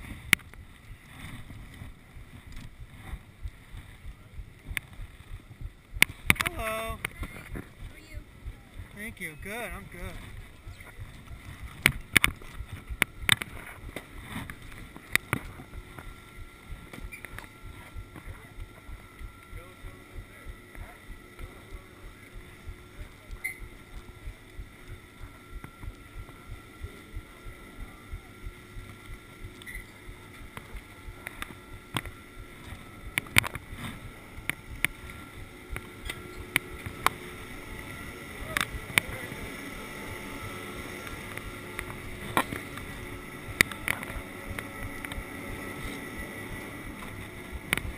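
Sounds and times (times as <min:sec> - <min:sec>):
chairlift machinery humming: 0:00.0 - 0:47.9
steady low rumble: 0:00.0 - 0:47.9.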